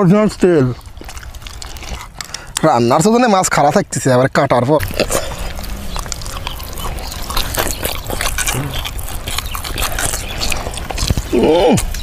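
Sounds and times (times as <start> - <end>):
person chewing and lip-smacking: 0.7 - 3.1, 4.8 - 12.0.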